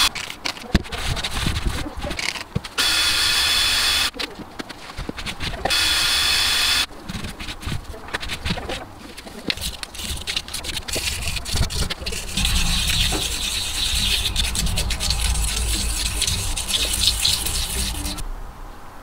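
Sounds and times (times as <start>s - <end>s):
scratchy scrubbing on metal: 4.6s - 18.2s.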